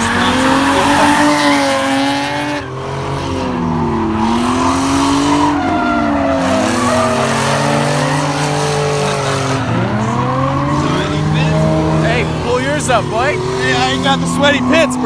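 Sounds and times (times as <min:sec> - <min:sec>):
car engines revving: 0:00.0 - 0:15.0
tires squealing: 0:00.0 - 0:15.0.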